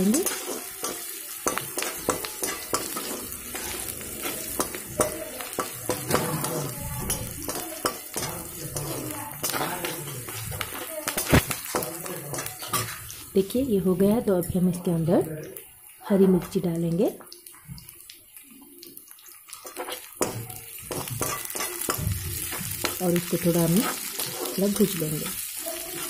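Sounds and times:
metal spatula scraping pan: 0.0 - 13.3, 19.6 - 25.0
onions sizzling in hot oil: 0.0 - 26.0.

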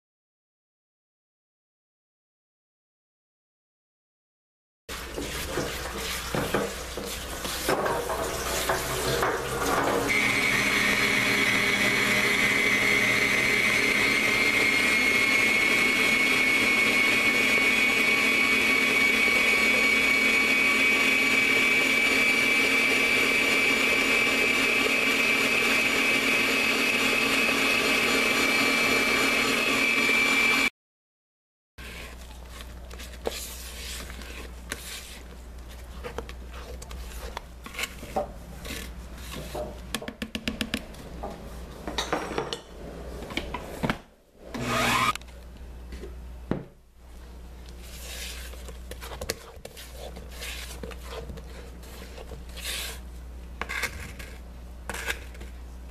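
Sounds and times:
spatula scraping and knocking bowl: 4.9 - 10.2, 31.8 - 42.6, 47.8 - 55.6
stand mixer whining: 8.1 - 30.7, 44.5 - 45.2.

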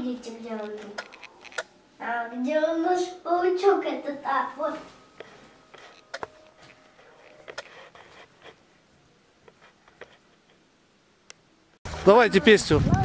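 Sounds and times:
sharp clicks: 0.6 - 1.7.

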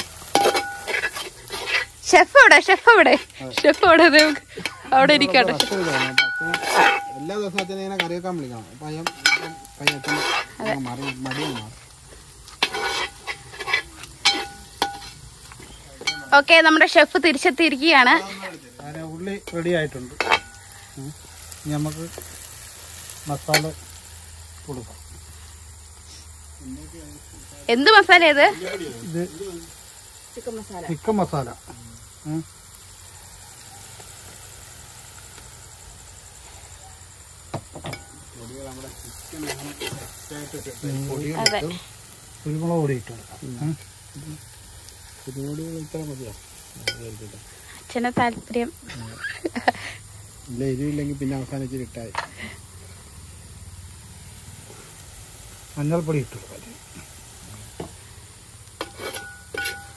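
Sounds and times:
onions sizzling: 0.0 - 59.9
ladle scraping metal pot: 0.3 - 2.0, 5.5 - 8.1, 9.0 - 11.7, 12.6 - 15.2, 58.8 - 59.9.

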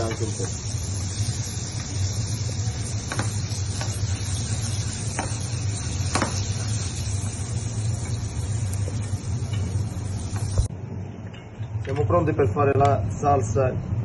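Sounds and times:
butter sizzling in a frying pan: 0.0 - 10.7
steady low hum: 0.0 - 14.0.

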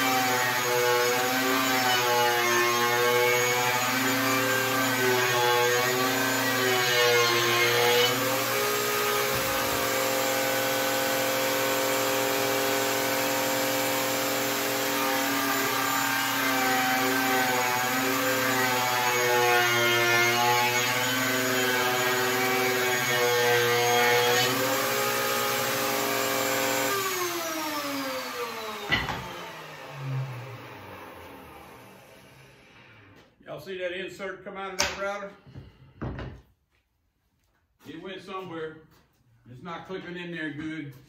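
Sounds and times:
electric router cutting wood: 0.0 - 33.2
router winding down whine: 24.3 - 33.0.

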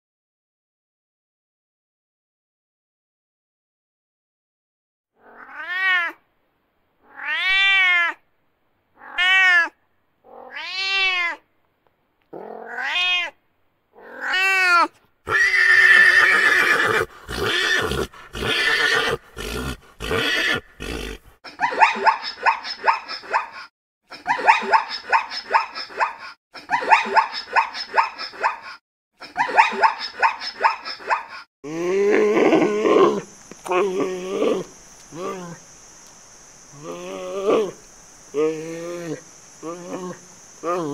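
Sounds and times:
cat meowing: 5.2 - 6.2, 7.0 - 8.2, 9.0 - 11.4, 12.4 - 13.4, 14.0 - 16.4
pony whinnying: 14.0 - 21.3.

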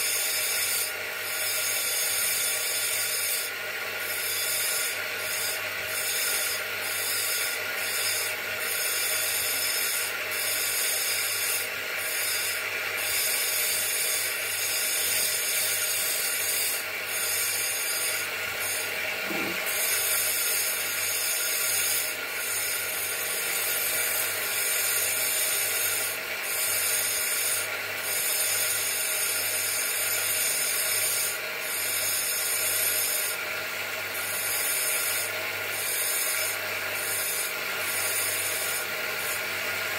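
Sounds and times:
stone grinding on wheel: 0.0 - 33.4, 34.2 - 39.9
bench grinder motor running: 0.0 - 39.9.

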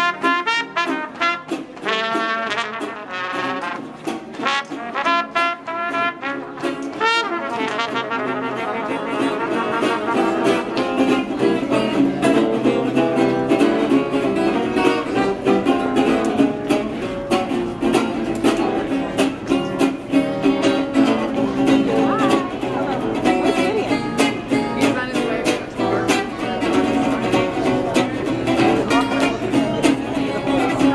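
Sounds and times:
brass horns: 0.0 - 10.6
jazz band playing: 0.0 - 30.9
strummed rhythm guitar: 0.0 - 30.9.

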